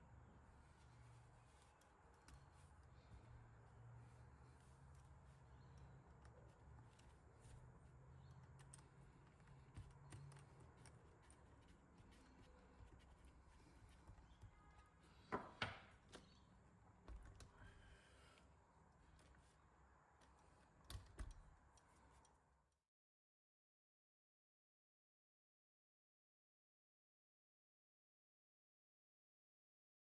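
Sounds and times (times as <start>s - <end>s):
small clicks and rubbing: 0.6s - 15.3s, 19.0s - 22.6s.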